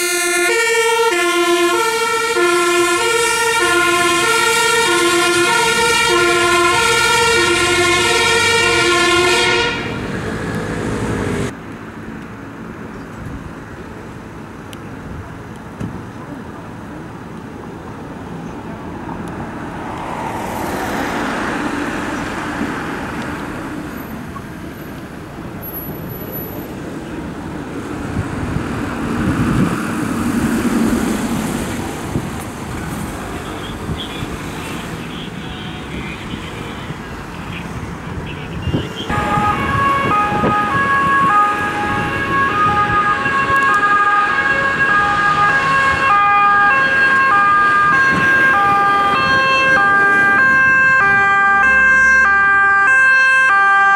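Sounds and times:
two-tone emergency siren: 0.0 - 10.1, 38.2 - 53.9
vehicles driving past: 0.0 - 53.9.

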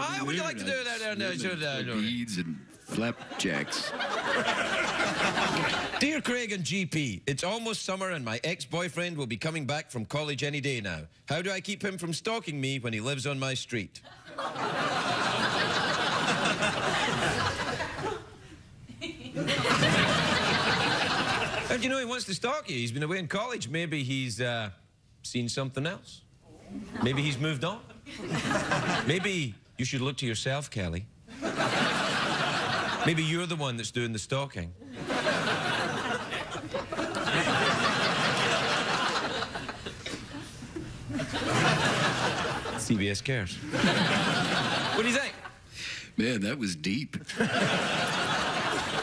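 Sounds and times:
studio audience laughing: 2.8 - 6.2, 14.1 - 21.8, 26.8 - 29.4, 31.3 - 33.3, 34.8 - 43.0, 43.6 - 45.7, 47.2 - 49.0.

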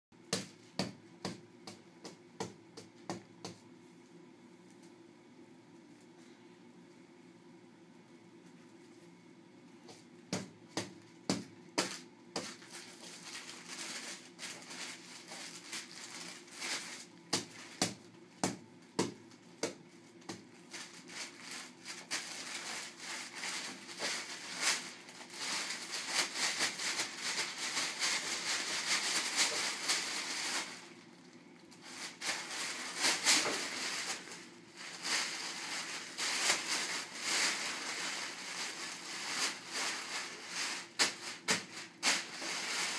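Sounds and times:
paper sheet crinkling: 11.8 - 17.8, 20.6 - 42.9.

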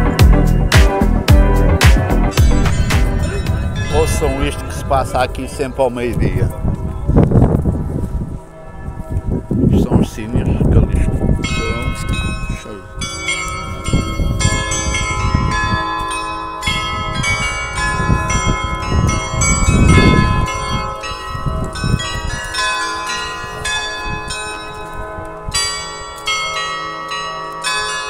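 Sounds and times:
tuned bells playing melody: 0.0 - 6.3, 11.4 - 28.0
low rumble: 0.0 - 8.2.

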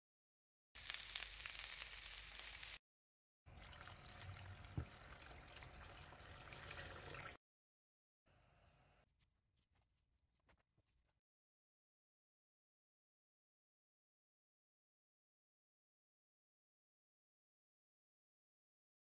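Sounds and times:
chicken sizzling in a pan: 0.8 - 2.8
water pouring into a pan: 3.5 - 7.4.

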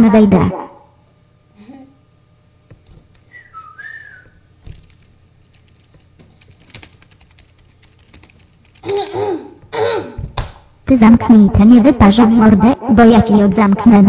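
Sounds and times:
short wavering whistle: 3.3 - 4.5
keyboard key clicks: 4.6 - 9.1.

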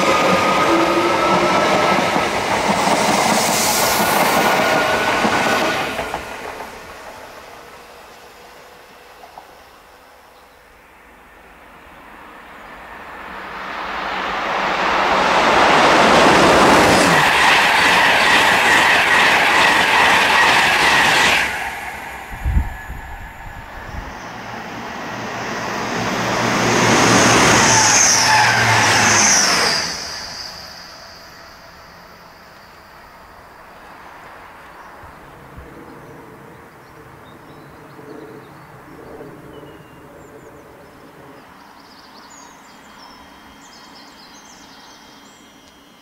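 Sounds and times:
train rushing past: 0.0 - 41.8
high-pitched wheel squealing: 26.8 - 31.7.

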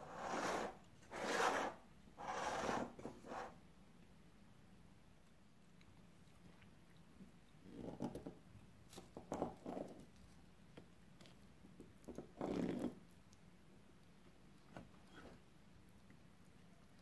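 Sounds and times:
knife scraping dish: 0.2 - 3.5.

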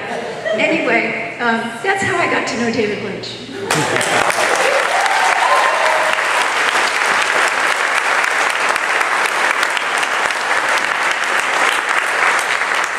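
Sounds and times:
audience applause: 3.7 - 12.9.

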